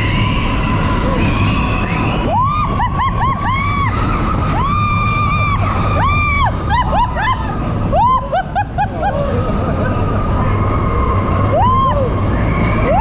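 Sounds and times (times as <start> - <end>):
coaster train rumbling on track: 0.0 - 13.0
riders screaming and whooping: 0.0 - 13.0.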